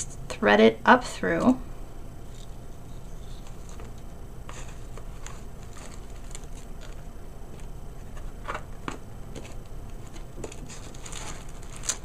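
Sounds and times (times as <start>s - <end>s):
steady low hum: 0.0s - 12.0s
tissue paper rustling: 2.4s - 7.0s, 9.4s - 12.0s.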